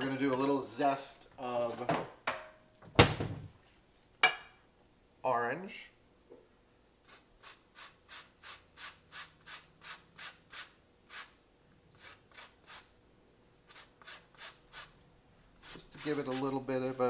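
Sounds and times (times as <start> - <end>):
grater scraping orange peel: 13.7 - 15.0.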